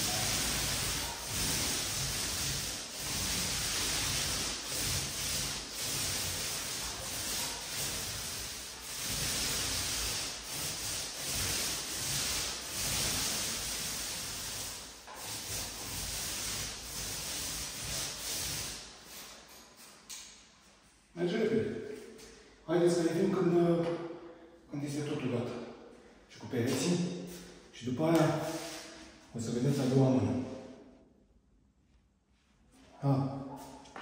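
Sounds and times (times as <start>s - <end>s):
paint roller rolling on wall: 0.0s - 20.1s.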